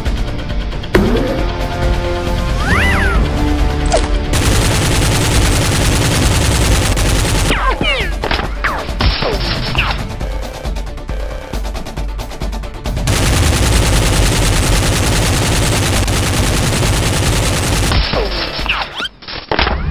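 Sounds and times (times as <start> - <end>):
action music: 0.0 - 18.7
rapid automatic gunfire: 4.3 - 7.8, 13.0 - 18.7.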